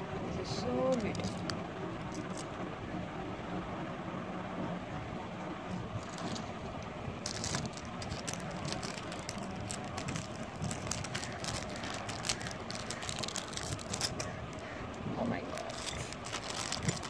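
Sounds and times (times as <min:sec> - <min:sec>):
steady background noise: 0:00.0 - 0:17.0
plastic packets rustling: 0:00.8 - 0:02.6, 0:06.0 - 0:17.0.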